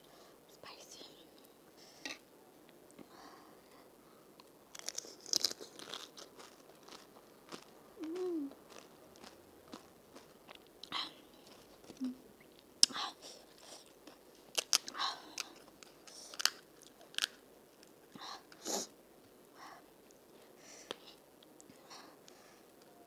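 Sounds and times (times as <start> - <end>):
crunchy chewing: 4.4 - 18.6.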